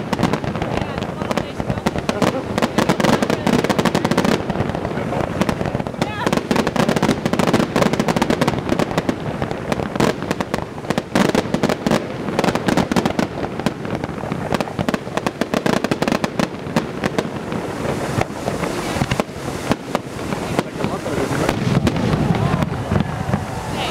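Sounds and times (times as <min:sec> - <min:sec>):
fireworks bangs and crackles: 0:00.0 - 0:23.9.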